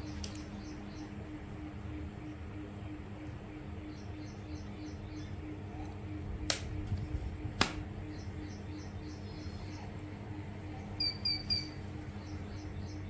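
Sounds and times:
small birds chirping: 0:00.0 - 0:07.2, 0:07.8 - 0:13.0
faint pulsing hum: 0:00.0 - 0:13.0
sharp clicks: 0:06.5 - 0:06.8.

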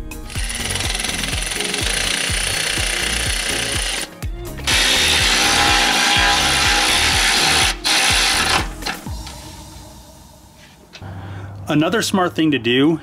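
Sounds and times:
background music with beat: 0:00.0 - 0:11.1
power ratchet spinning bolts: 0:00.2 - 0:04.1, 0:04.7 - 0:09.0.

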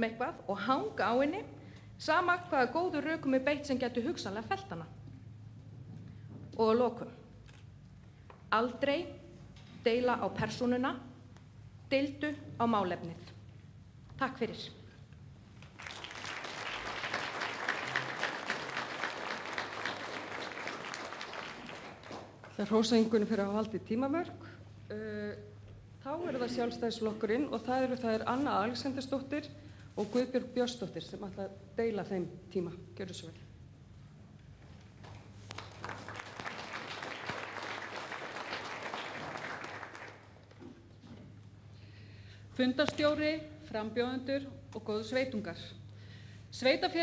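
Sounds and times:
audience applauding: 0:15.6 - 0:22.6, 0:35.6 - 0:40.6.

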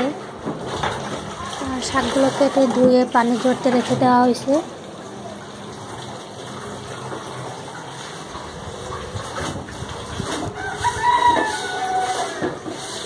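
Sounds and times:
rooster crowing: 0:10.5 - 0:12.6.

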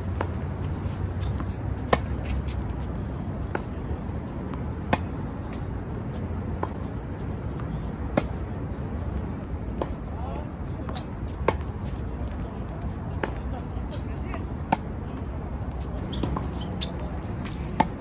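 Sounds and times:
steady low rumble: 0:00.0 - 0:16.1
tennis balls hit with rackets: 0:00.1 - 0:02.6, 0:04.4 - 0:05.6, 0:08.1 - 0:08.4.

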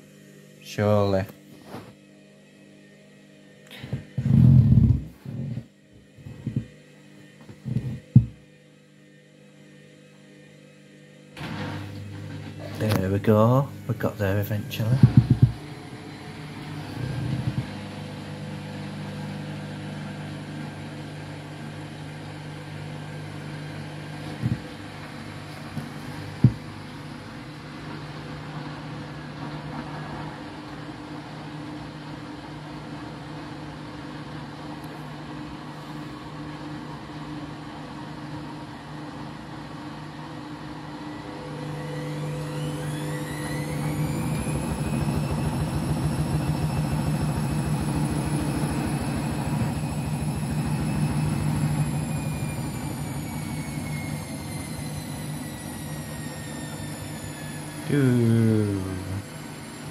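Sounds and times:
washing machine drum spinning: 0:14.9 - 0:18.2, 0:42.6 - 0:57.5.

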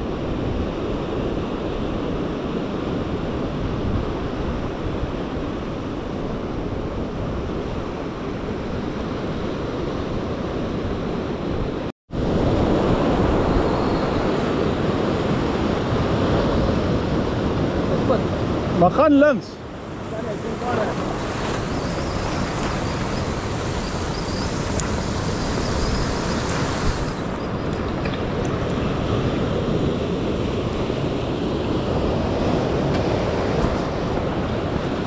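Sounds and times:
wind on microphone: 0:00.0 - 0:18.9, 0:19.6 - 0:35.0
surf washing over rocks: 0:12.2 - 0:35.0.

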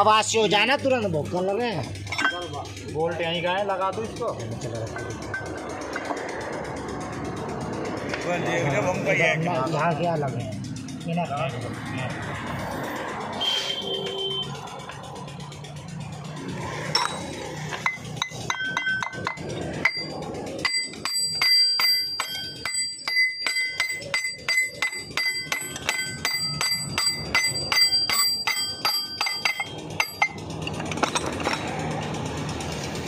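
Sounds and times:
metal-on-metal tapping with ringing: 0:01.8 - 0:06.2, 0:16.9 - 0:31.8.

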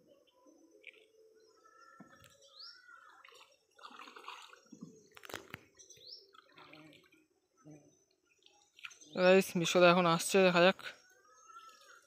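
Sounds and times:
water sloshing and dripping: 0:03.0 - 0:07.3.

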